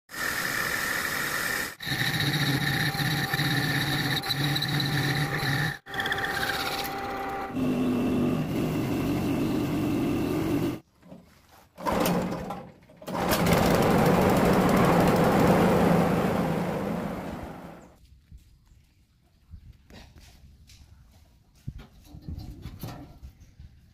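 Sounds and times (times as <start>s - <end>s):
threshing machine droning: 0.1s - 10.8s, 13.0s - 18.0s
metal lathe humming: 0.2s - 10.8s.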